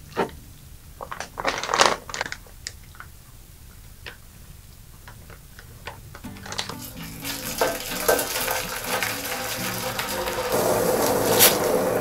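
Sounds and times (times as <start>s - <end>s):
plastic crinkling and rustling: 1.0s - 3.1s, 5.0s - 12.0s.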